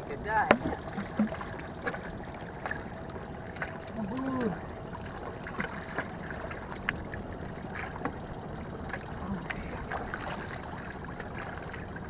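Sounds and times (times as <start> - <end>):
seawater lapping against concrete: 0.0 - 12.0
light splashes and clicks: 0.4 - 4.5.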